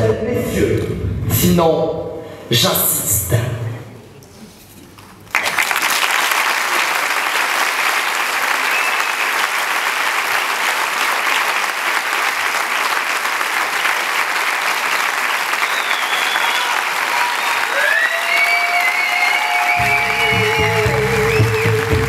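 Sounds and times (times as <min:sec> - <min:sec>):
audience applauding: 0:05.2 - 0:22.0.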